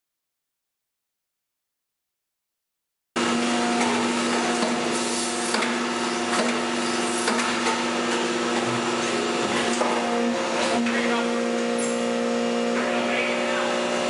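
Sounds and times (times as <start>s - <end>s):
hydraulic machine humming: 3.2s - 14.0s.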